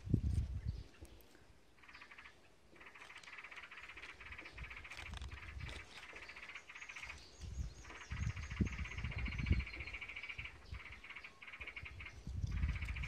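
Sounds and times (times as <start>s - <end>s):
high bird chirps: 0.2s - 13.0s
low rumbling on microphone: 7.3s - 11.0s, 11.8s - 13.0s.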